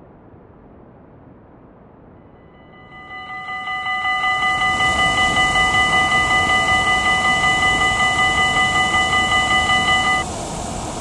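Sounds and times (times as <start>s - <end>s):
steady rushing noise: 0.0s - 11.0s
railroad crossing bell ringing: 2.6s - 10.2s.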